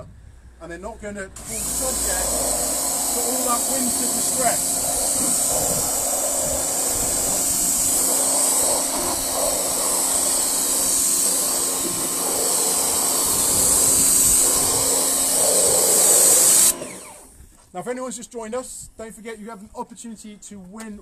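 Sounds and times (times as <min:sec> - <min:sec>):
pressure washer spray hissing: 0:01.4 - 0:17.3
low pump hum: 0:01.7 - 0:15.9.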